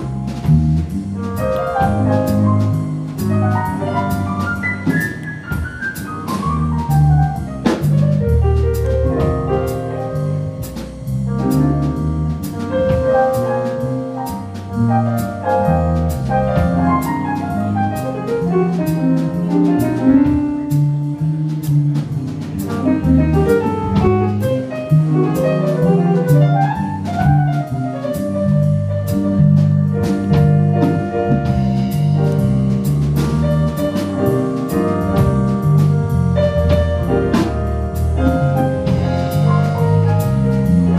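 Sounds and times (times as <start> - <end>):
bass notes: 0.0 - 40.9
drum kit keeping time: 0.0 - 40.9
piano runs: 0.0 - 40.9.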